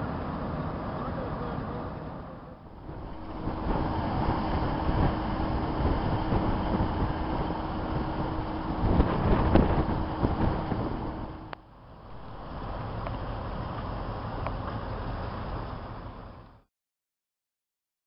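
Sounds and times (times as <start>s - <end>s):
idling vehicles humming: 0.0s - 16.7s
wind rushing across microphone: 2.6s - 13.8s.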